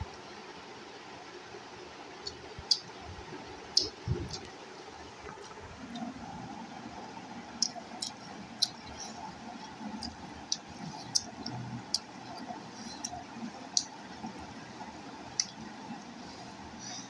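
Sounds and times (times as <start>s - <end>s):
faint steady hum: 0.0s - 17.0s
fingers mixing rice on plate: 7.6s - 14.0s.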